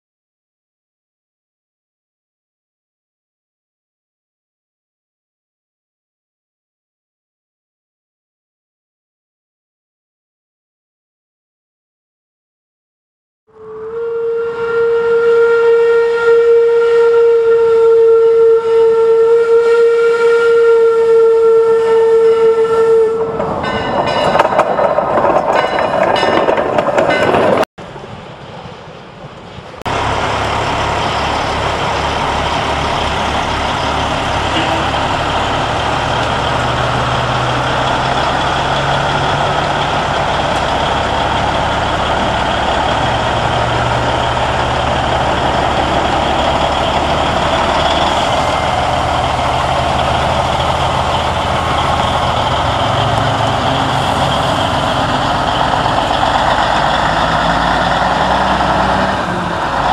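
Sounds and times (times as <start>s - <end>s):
steam locomotive whistle: 13.5s - 23.7s, 33.3s - 37.5s
rushing noise: 23.2s - 59.9s
truck engine idling: 27.8s - 59.9s.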